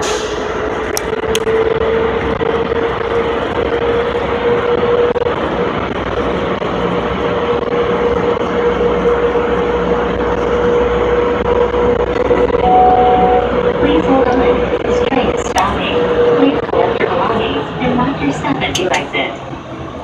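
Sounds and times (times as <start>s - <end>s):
train rushing rumble: 0.0s - 12.5s
low hum: 12.4s - 13.9s
mid-pitched whine: 12.4s - 13.9s.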